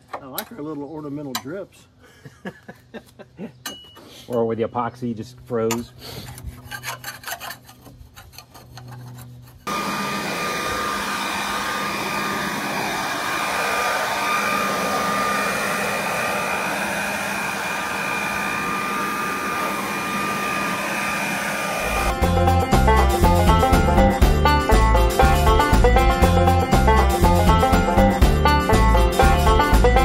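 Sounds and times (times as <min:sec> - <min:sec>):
putty knife scraping: 0:06.0 - 0:09.7
leaf blower running: 0:09.7 - 0:30.0.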